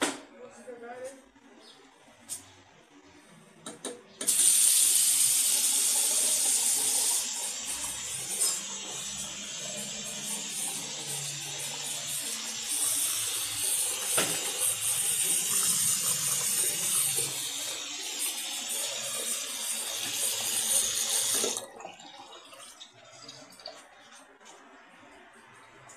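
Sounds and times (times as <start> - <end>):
tap running into basin: 3.7 - 24.6
faint water trickle: 21.6 - 25.8.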